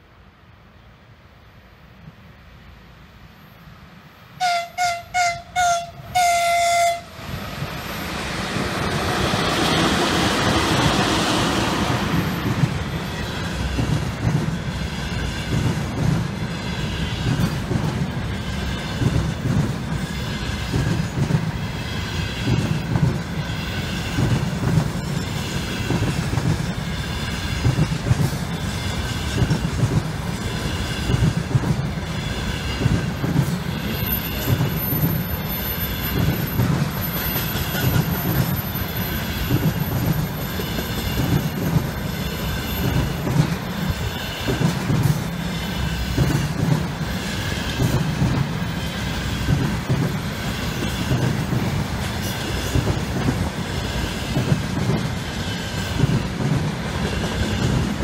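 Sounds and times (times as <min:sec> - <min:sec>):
locomotive air horn: 0:04.4 - 0:07.2
locomotive passing rush: 0:06.0 - 0:58.0
train wheels clacking over rail joints: 0:08.5 - 0:58.0.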